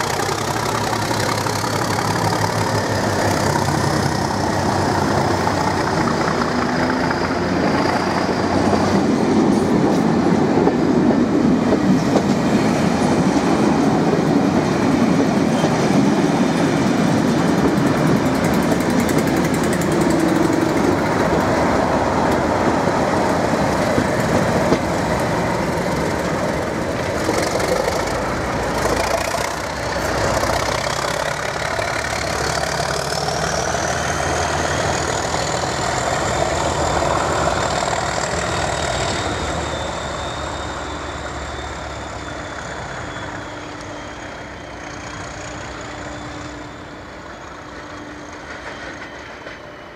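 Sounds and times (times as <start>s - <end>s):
diesel locomotive engine running: 0.0s - 49.9s
high engine whine: 0.0s - 49.9s
train coaches rushing past: 0.0s - 49.9s
wheel-on-rail clatter: 17.3s - 21.6s, 23.3s - 36.4s.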